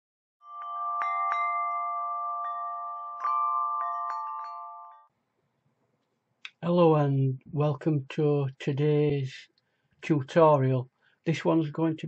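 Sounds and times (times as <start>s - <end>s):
bell-like chimes: 0.4s - 5.1s.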